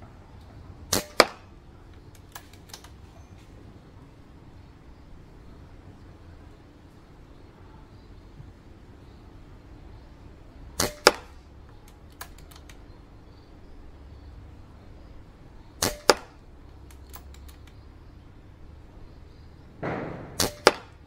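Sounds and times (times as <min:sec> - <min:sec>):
air rifle shots: 0:00.9 - 0:01.6, 0:10.8 - 0:11.4, 0:15.8 - 0:17.3, 0:19.8 - 0:21.0
faint clicks: 0:11.6 - 0:13.0, 0:15.8 - 0:17.9.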